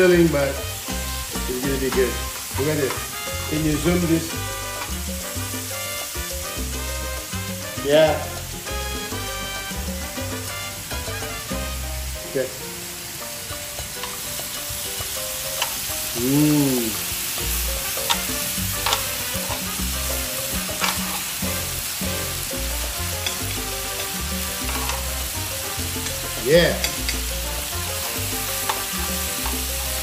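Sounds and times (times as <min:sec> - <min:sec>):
meat sizzling on a grill pan: 0:00.0 - 0:30.0
metal tongs clicking and scraping: 0:15.6 - 0:15.8, 0:18.0 - 0:21.3, 0:24.7 - 0:25.1, 0:28.6 - 0:29.7.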